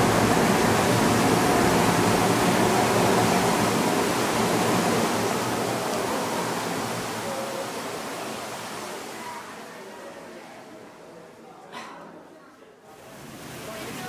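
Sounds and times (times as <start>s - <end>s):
water mill rushing: 0.0s - 10.9s, 13.0s - 14.0s.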